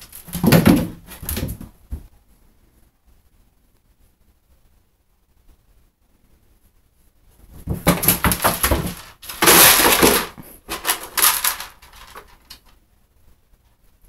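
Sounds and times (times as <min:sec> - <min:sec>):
kibble and dish clattering in bathtub: 0:00.0 - 0:02.0, 0:07.6 - 0:12.6.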